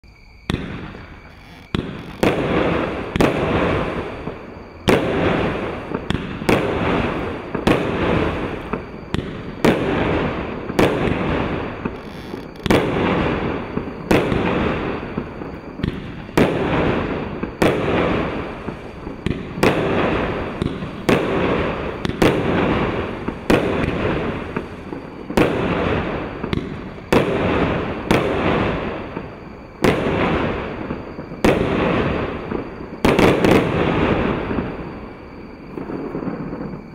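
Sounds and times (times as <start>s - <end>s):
firework shots banging: 1.7s - 4.1s.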